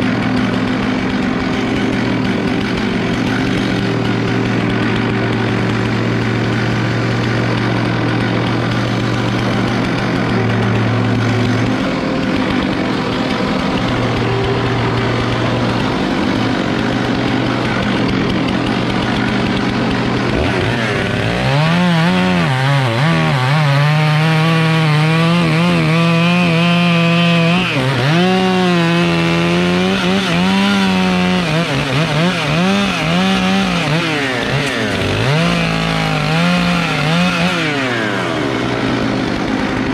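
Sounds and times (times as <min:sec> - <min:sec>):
chainsaw cutting logs: 0:00.0 - 0:39.9.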